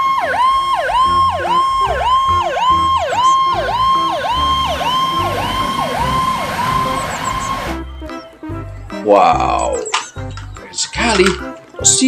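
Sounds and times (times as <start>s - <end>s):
fire truck siren yelping: 0.0s - 8.3s
low throb: 0.4s - 8.0s.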